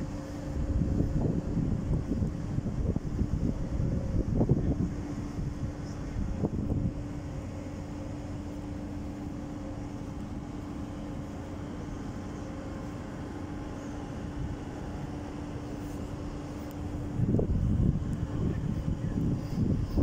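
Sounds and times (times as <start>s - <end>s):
steady mechanical drone: 0.0s - 20.0s.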